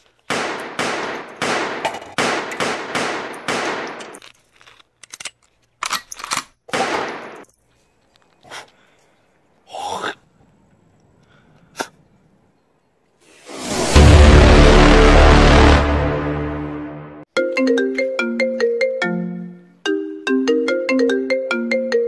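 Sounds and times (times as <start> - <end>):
handgun shots: 0.3 - 4.2, 6.7 - 7.4.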